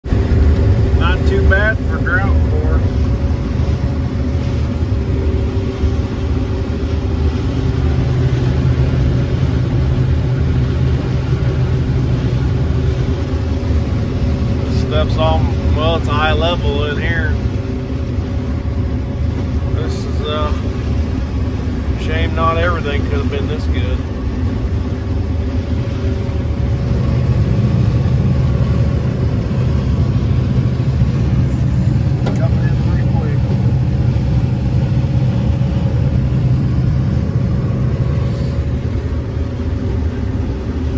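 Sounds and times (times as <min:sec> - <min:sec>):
combine harvester drone: 0:00.0 - 0:40.9.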